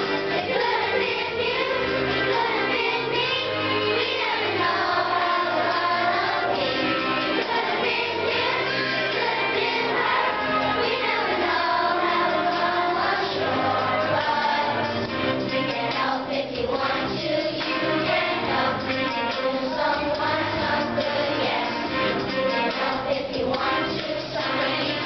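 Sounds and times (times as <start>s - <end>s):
children's choir singing: 0.0s - 25.0s
musical accompaniment: 0.0s - 25.0s.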